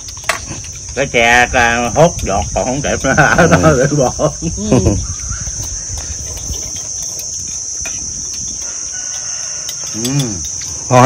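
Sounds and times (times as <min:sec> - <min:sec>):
insects chirring: 0:00.0 - 0:11.0
spoons clicking on bowls: 0:05.5 - 0:11.0.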